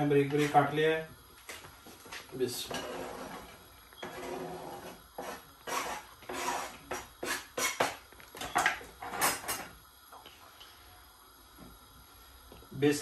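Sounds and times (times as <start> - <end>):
utensils clinking and scraping a dish: 2.6 - 9.7.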